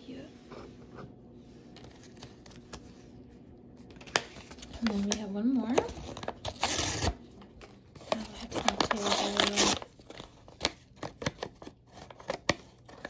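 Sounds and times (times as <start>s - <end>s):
plastic pouch crinkling: 8.0s - 11.9s.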